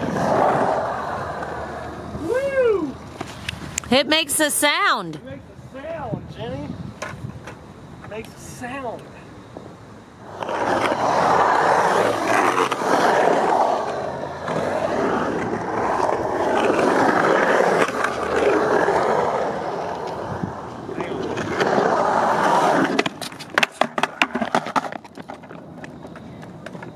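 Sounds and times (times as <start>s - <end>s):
skateboard wheels rolling on concrete: 0.0s - 26.9s
skateboard clacks and knocks: 21.0s - 26.9s.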